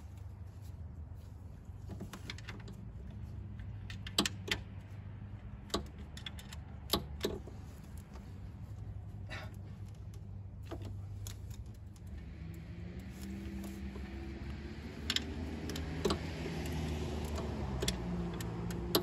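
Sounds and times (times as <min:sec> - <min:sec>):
ratcheting wrench clicking: 0:15.0 - 0:19.0.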